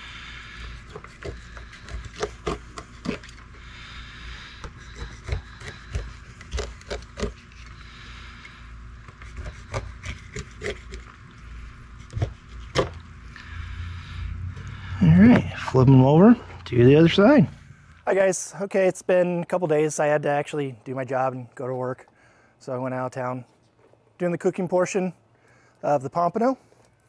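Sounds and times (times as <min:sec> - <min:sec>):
knife clicking and scraping on lid: 0:09.3 - 0:11.1.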